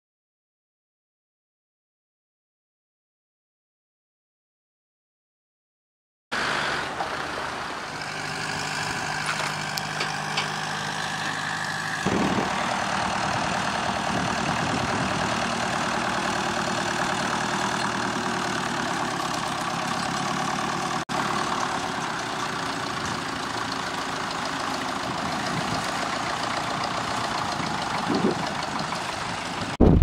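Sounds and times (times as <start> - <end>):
louder engine: 6.3 - 30.0
tractor engine running: 6.4 - 30.0.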